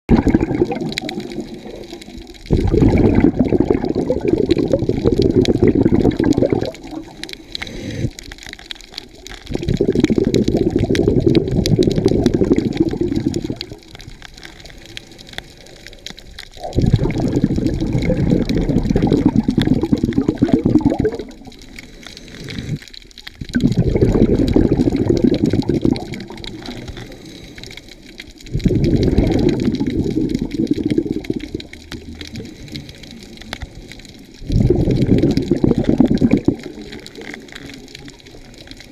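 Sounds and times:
underwater bubbles gurgling: 0:00.1 - 0:38.9
diver inhaling: 0:07.2 - 0:08.2, 0:21.6 - 0:22.9, 0:26.7 - 0:28.2.

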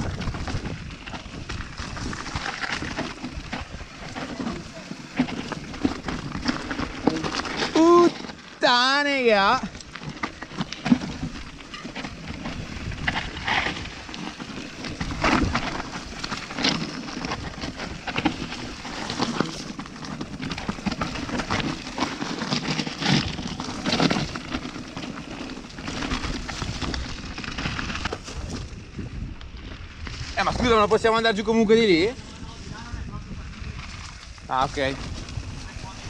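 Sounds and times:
bike rattling over bumps: 0:00.0 - 0:36.0
tyres crackling over gravel: 0:00.0 - 0:36.0.

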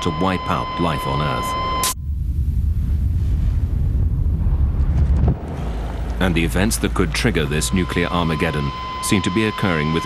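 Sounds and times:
deep explosion rumble: 0:02.0 - 0:08.4.

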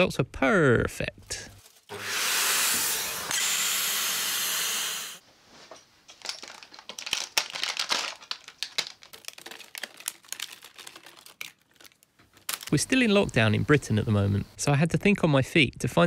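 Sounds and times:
plastic sheet crinkling: 0:01.5 - 0:01.9, 0:06.2 - 0:13.1
vacuum cleaner running: 0:01.9 - 0:05.2.

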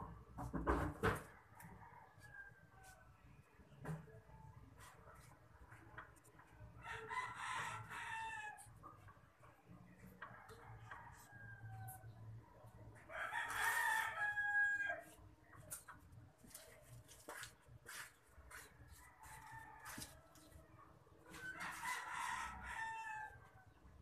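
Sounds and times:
rooster crowing: 0:06.8 - 0:08.6, 0:13.1 - 0:15.1, 0:21.4 - 0:23.4.

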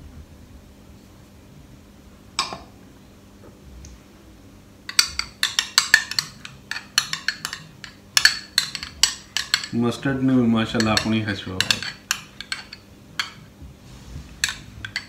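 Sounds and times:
metal spoon clinking on glass bowl: 0:04.9 - 0:09.8, 0:10.7 - 0:13.4.

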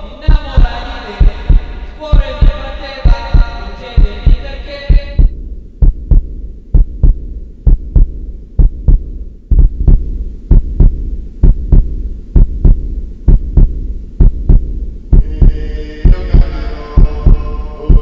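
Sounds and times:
heartbeat thumps: 0:00.0 - 0:18.0
low drone: 0:15.0 - 0:18.0.

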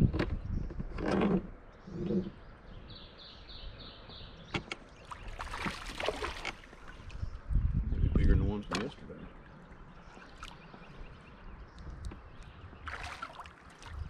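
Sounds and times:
landing net splashing into water: 0:05.0 - 0:07.1, 0:12.8 - 0:14.0
fish splashing at the surface: 0:05.1 - 0:07.0, 0:12.9 - 0:14.0.

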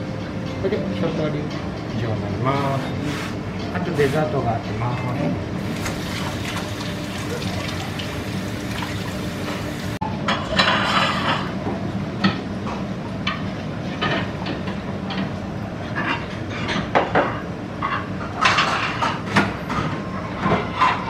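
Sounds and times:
dishes and utensils clinking: 0:05.6 - 0:11.6.

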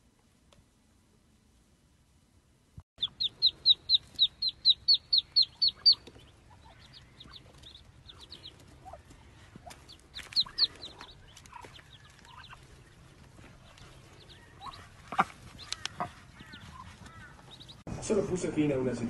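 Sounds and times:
ducklings peeping: 0:03.0 - 0:17.8.

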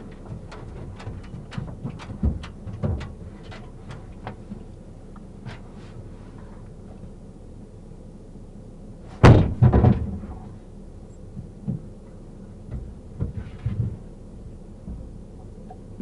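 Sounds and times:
light knocks and bumps: 0:00.0 - 0:06.1, 0:09.2 - 0:10.6, 0:11.3 - 0:16.0
loud double thump: 0:09.2 - 0:10.3.

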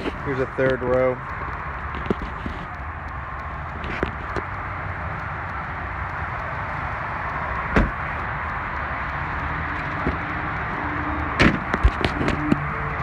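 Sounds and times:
steady outdoor hiss: 0:00.0 - 0:13.0
car door slamming: 0:07.7 - 0:08.0, 0:11.4 - 0:11.6.

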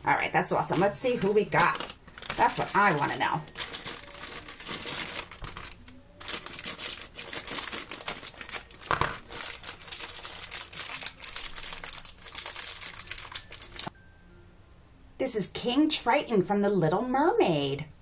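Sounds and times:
plastic bag crinkling: 0:00.4 - 0:13.9.

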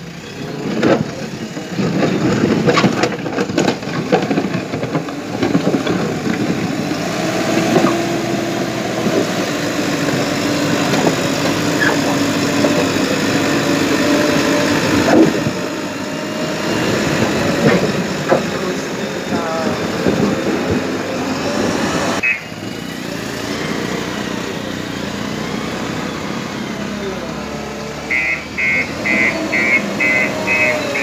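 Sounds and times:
diesel engine under load: 0:00.0 - 0:31.0
knocks and clatter: 0:00.6 - 0:21.5.

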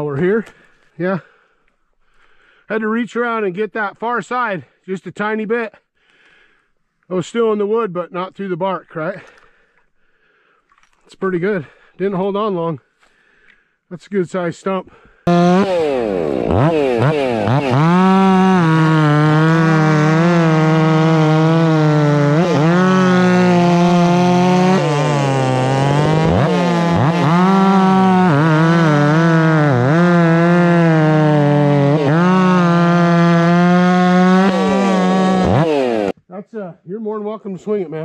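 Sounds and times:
chainsaws running at high revs: 0:15.3 - 0:36.2.

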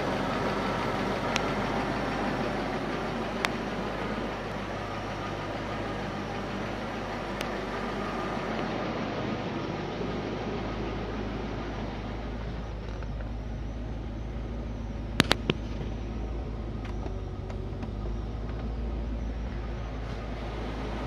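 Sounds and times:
petrol engine idling: 0:00.0 - 0:21.0
sharp clicks: 0:15.2 - 0:15.6.

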